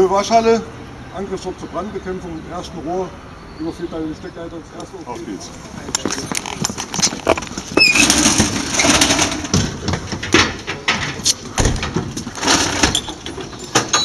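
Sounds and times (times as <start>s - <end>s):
equipment knocking and clattering: 5.9s - 14.0s.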